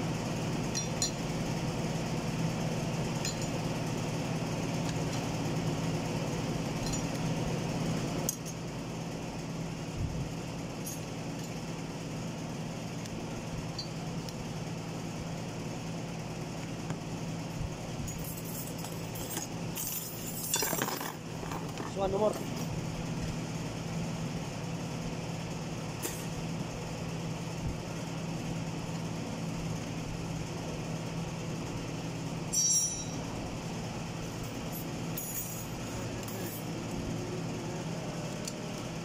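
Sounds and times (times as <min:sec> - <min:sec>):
low machine hum: 0:00.0 - 0:39.0
metal parts clinking: 0:18.1 - 0:22.4, 0:32.5 - 0:33.2, 0:34.7 - 0:36.7.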